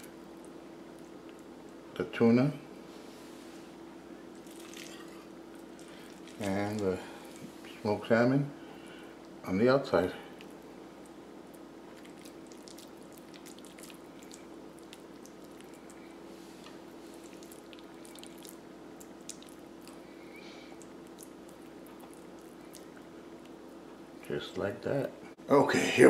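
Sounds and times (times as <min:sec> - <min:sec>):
steady low hum: 0:00.0 - 0:26.0
hands squishing wet food: 0:04.2 - 0:07.6, 0:10.3 - 0:24.3.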